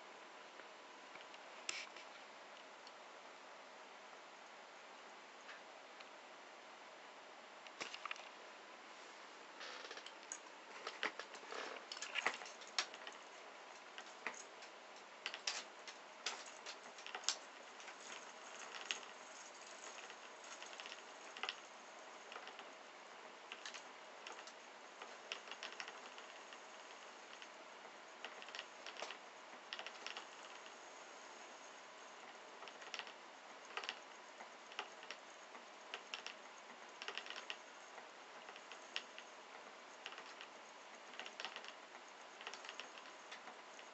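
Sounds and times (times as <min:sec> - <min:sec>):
faint high whine: 0:00.0 - 0:43.9
spinning toy mechanism clicking: 0:09.8 - 0:22.8, 0:23.4 - 0:27.6, 0:28.2 - 0:43.9.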